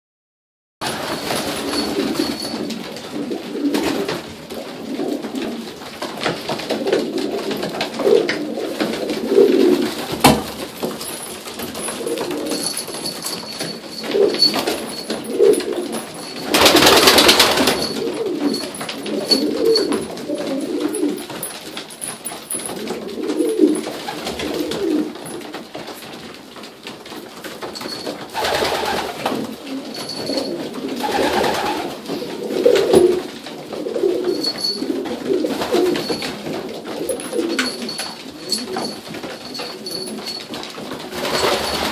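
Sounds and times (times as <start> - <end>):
pigeons cooing: 1.6 - 5.8, 6.7 - 10.0, 11.9 - 12.8, 17.6 - 21.4, 22.8 - 25.2, 28.4 - 40.4.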